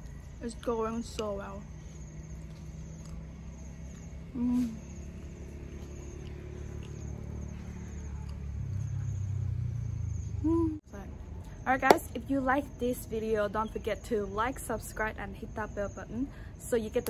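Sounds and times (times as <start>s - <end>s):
crickets trilling: 0.0s - 17.0s
person humming: 4.3s - 4.9s, 10.4s - 10.8s.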